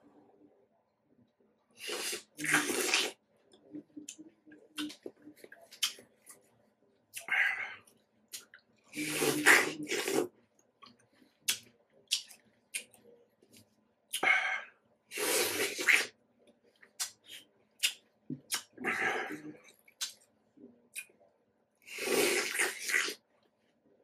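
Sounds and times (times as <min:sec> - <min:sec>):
slurping: 0:01.8 - 0:03.2, 0:09.0 - 0:10.3, 0:15.1 - 0:16.1, 0:21.9 - 0:23.2
wet mouth clicks chewing: 0:03.7 - 0:06.0, 0:10.8 - 0:13.0.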